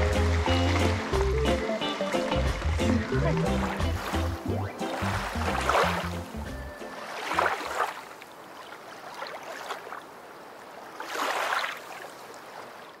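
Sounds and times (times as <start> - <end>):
background music: 0.0 - 7.6
rushing water: 0.0 - 13.0.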